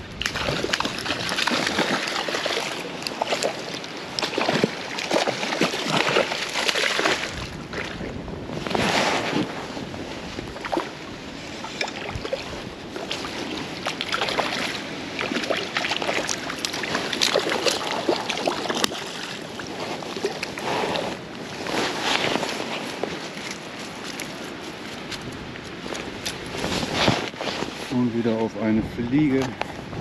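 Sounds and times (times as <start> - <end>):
water splashing and trickling: 0.0 - 8.2, 10.3 - 25.2
wind noise: 0.0 - 30.0.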